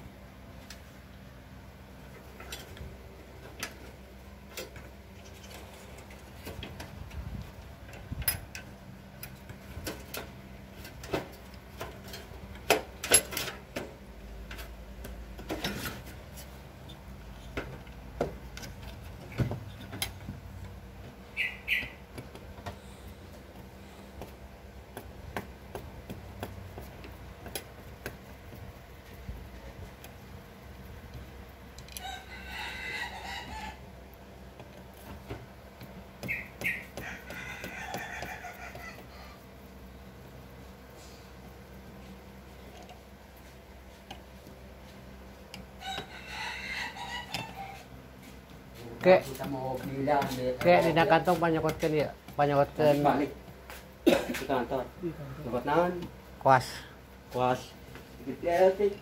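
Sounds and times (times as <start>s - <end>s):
chicken calling: 21.3s - 22.0s, 32.0s - 33.8s, 36.2s - 39.5s, 45.8s - 47.9s.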